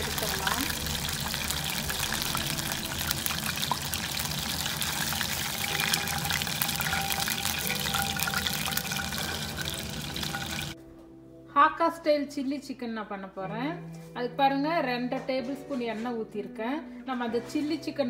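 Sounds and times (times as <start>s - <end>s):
oil sizzling and crackling: 0.0s - 10.8s.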